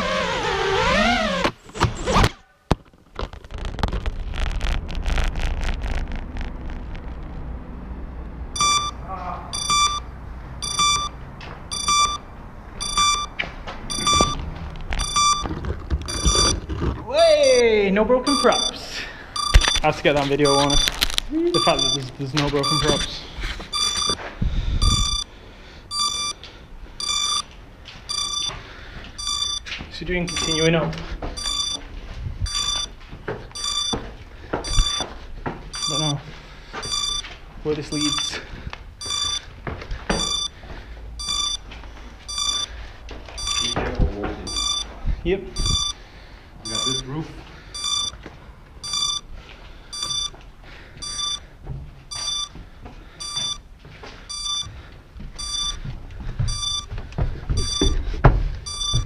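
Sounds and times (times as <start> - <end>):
drone crashing impacts: 4.3 - 7.4
electronic beeper beeping: 8.6 - 12.2, 12.8 - 14.4, 15.0 - 15.5, 16.1 - 16.6, 17.4 - 17.7, 18.3 - 18.8, 19.4 - 23.1, 23.7 - 24.2, 24.8 - 25.3, 25.9 - 26.4, 27.0 - 27.4, 28.1 - 28.6, 29.2 - 29.7, 30.3 - 30.7, 31.4 - 31.8, 32.5 - 32.9, 33.6 - 34.0, 34.6 - 35.1, 35.8 - 36.2, 36.8 - 37.3, 37.9 - 38.4, 39.0 - 39.4, 40.2 - 40.6, 41.2 - 41.6, 42.3 - 42.7, 43.4 - 43.8, 44.5 - 44.9, 45.6 - 46.0, 46.7 - 47.1, 47.8 - 48.2, 48.8 - 49.2, 50.0 - 50.3, 51.0 - 51.4, 52.1 - 52.5, 53.2 - 53.6, 54.3 - 54.7, 55.4 - 55.8, 56.5 - 56.9, 57.6 - 58.0, 58.7 - 59.0.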